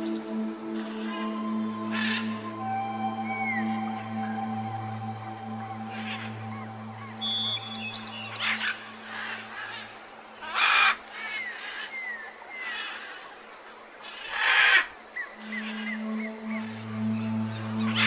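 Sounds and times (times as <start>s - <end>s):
low music drone: 0.0s - 10.4s, 15.3s - 18.0s
birds whistling: 3.2s - 9.9s.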